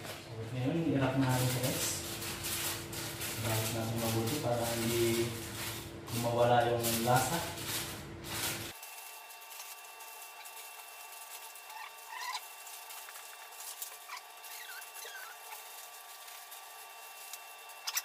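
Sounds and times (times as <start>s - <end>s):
aluminium foil crinkling: 0.7s - 18.0s
faint squeaks: 13.8s - 15.8s.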